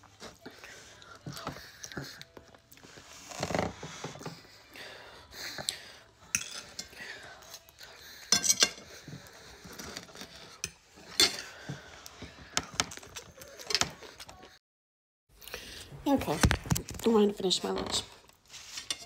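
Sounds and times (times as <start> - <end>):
knife and fork scraping on plate: 6.3 - 6.9, 8.2 - 11.5, 18.5 - 19.0.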